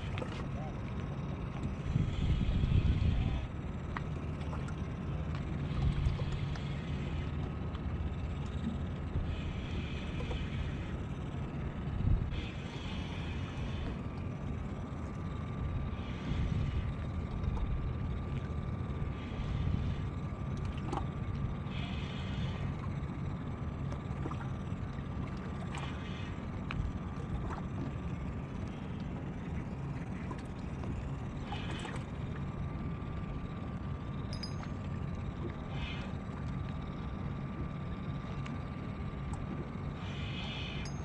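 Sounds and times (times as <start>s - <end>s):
boat motor hum: 0.0s - 41.0s
faint high whine: 0.0s - 41.0s
wind and water hiss: 0.0s - 41.0s.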